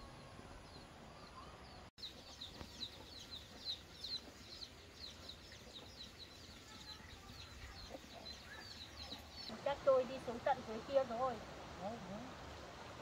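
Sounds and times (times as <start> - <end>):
chicks peeping: 1.2 - 9.5.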